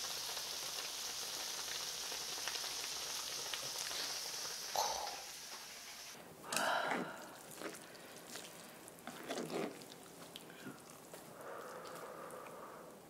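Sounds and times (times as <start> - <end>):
wet squishing of noodles: 6.9 - 13.0.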